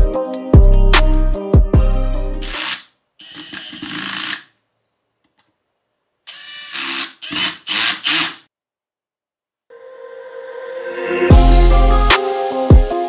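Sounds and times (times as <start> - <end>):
cordless drill running: 2.4 - 4.5, 6.3 - 8.5.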